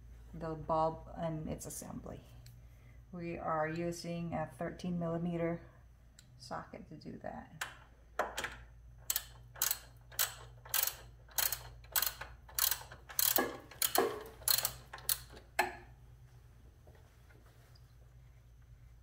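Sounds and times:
ratchet wrench clicking: 9.0s - 15.4s.

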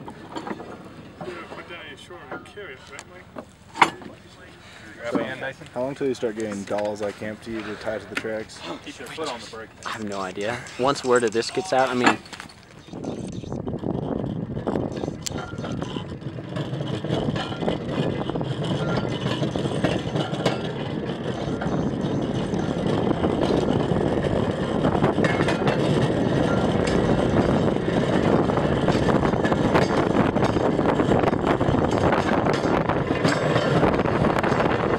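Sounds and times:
steel wheels rumbling on rails: 10.4s - 34.9s.

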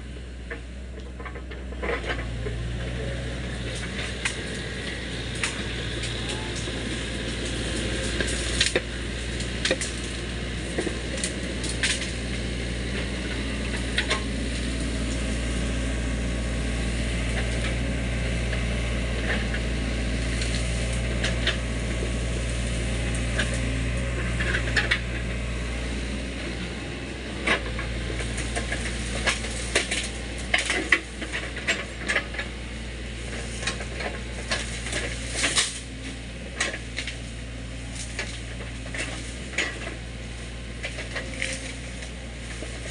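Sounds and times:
excavator diesel engine running: 0.0s - 42.9s
bamboo snapping: 10.8s - 12.1s, 34.5s - 35.9s.

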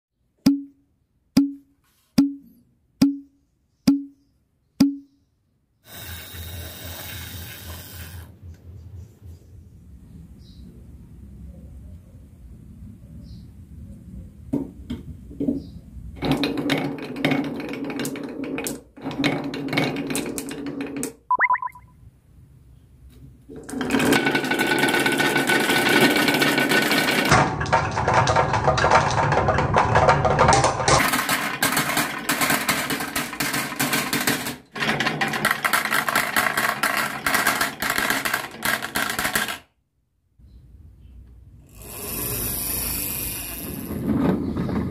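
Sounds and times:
glass marbles rolling on wood: 16.2s - 21.8s, 23.6s - 39.7s, 41.8s - 44.9s.

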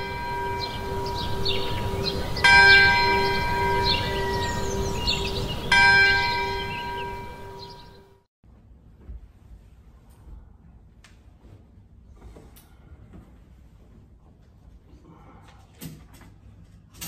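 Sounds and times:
church bell tolling: 0.0s - 8.2s.

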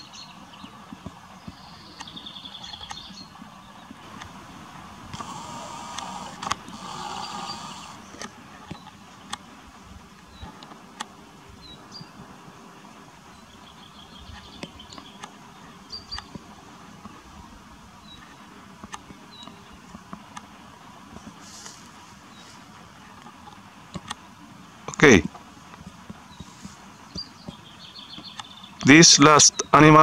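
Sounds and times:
sharp clicks: 5.0s - 9.4s.

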